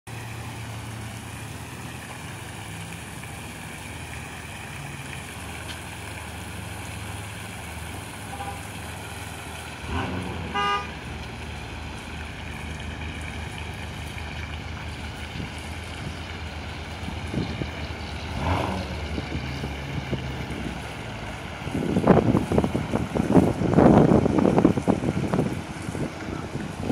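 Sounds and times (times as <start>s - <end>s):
fountain jets splashing: 0.1s - 26.9s
car horn toot: 8.2s - 8.8s, 9.9s - 11.0s.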